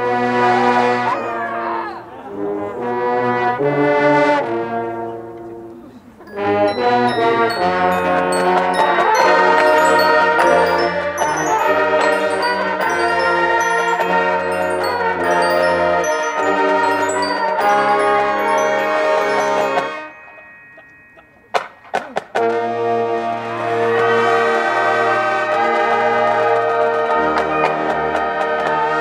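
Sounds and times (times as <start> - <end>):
marching band brass chords: 0.0 - 20.2, 21.6 - 29.0
mallet percussion high notes: 6.2 - 22.6.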